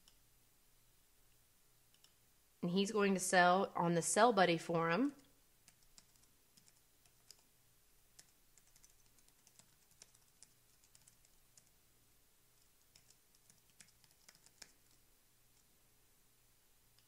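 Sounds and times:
typing on keyboard: 5.6 - 7.5, 8.1 - 11.7, 12.6 - 15.0.

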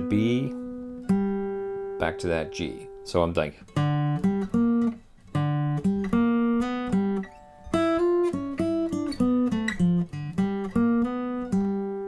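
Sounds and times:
acoustic guitar plucked notes: 0.0 - 12.0.

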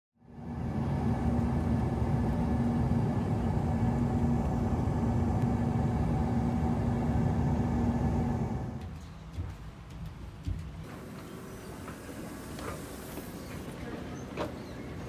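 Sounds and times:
airliner cabin engine rush: 0.2 - 8.8, 10.8 - 15.0
constant low hum: 0.2 - 15.0.

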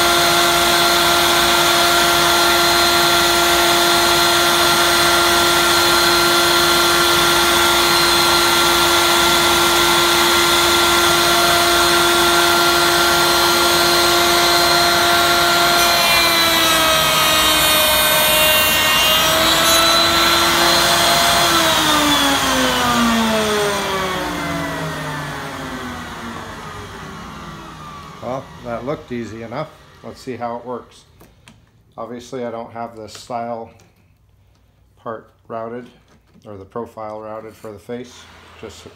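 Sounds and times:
router motor whine: 0.0 - 30.2
router bit cutting wood: 0.0 - 30.7.

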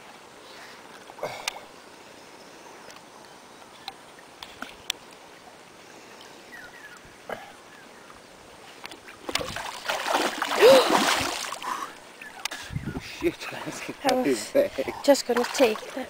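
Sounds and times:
fish splashing in shallow water: 8.9 - 12.0.

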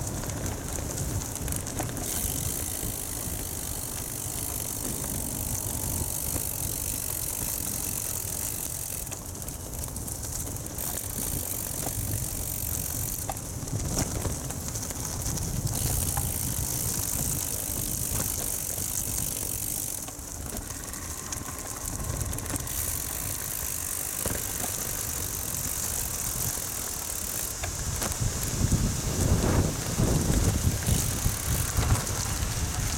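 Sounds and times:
bicycle tyres on dirt track: 0.0 - 32.9
bike rattling and clicking: 0.0 - 32.9
wind on microphone: 15.1 - 26.7, 27.6 - 32.9.

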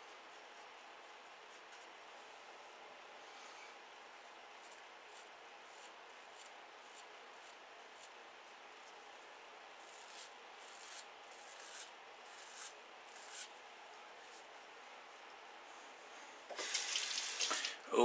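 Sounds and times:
razor scraping over stubble: 3.2 - 9.0, 9.8 - 14.5
tap running water into sink: 16.5 - 17.8.

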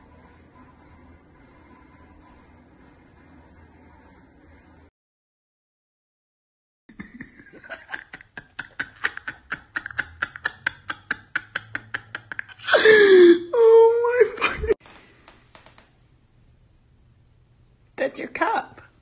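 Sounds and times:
stifled giggling: 6.9 - 14.8.

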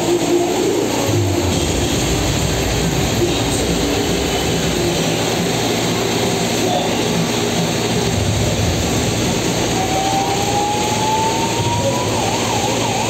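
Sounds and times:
engines and street noise: 0.0 - 13.0
siren warbling: 9.7 - 13.0.

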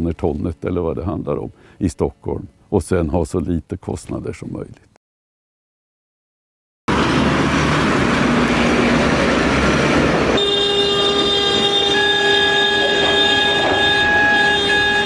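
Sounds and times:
heavy machinery noise: 6.9 - 15.0.

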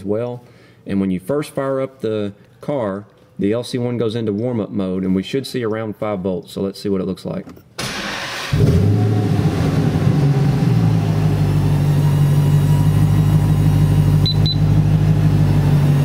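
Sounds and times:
car engine starting and idling: 7.8 - 16.0.

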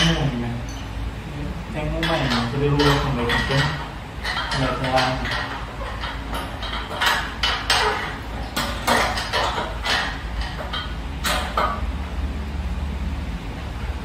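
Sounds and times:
metal clanks and clinks: 0.0 - 1.0, 2.0 - 11.8.

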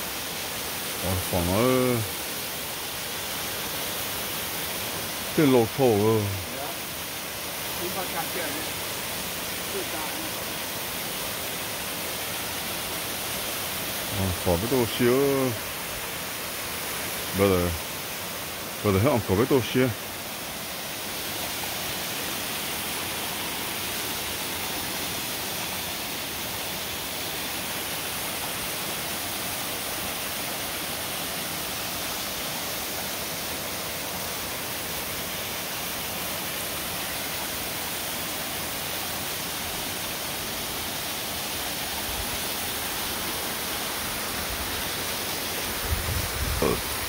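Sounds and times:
waterfall rushing into pool: 0.0 - 47.0.

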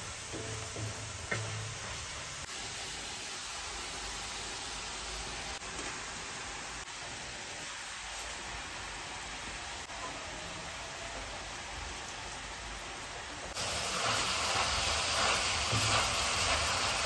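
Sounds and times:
mushrooms sizzling in a pan: 0.0 - 10.0, 13.5 - 17.0.

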